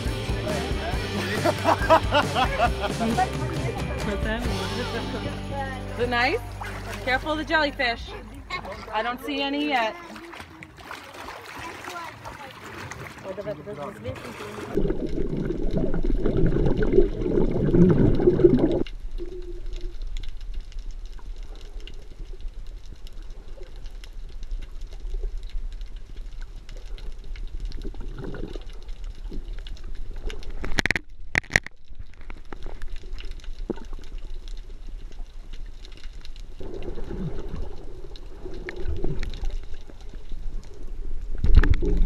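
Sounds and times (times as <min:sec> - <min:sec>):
water churning and bubbling: 0:06.1 - 0:42.0.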